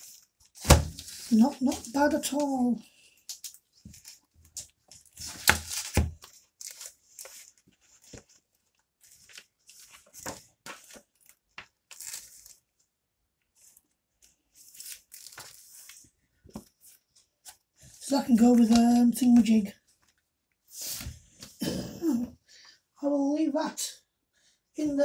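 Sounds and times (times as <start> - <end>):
plastic sleeves crinkling: 0.0 - 12.9, 13.5 - 17.6.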